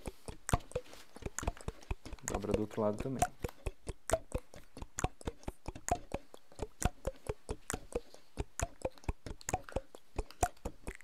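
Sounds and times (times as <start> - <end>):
wood block knock: 0.0 - 8.6
ticking percussion clicks: 0.0 - 11.0.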